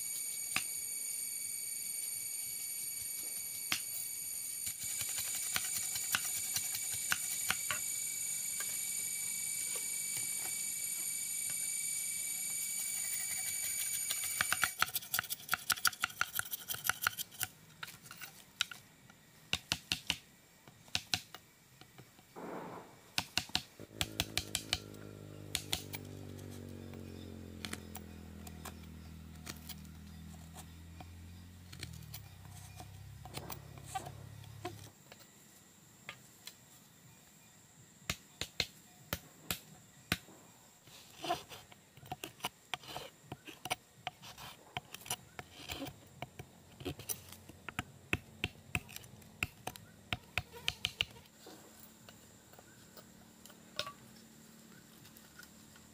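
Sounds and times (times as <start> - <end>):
knife chopping bamboo: 4.7 - 7.8, 25.5 - 25.9
low falling drone: 23.8 - 34.8.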